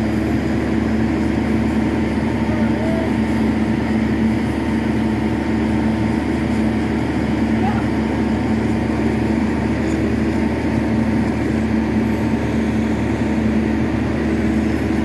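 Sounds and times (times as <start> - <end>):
welding machine power unit humming: 0.0 - 15.0.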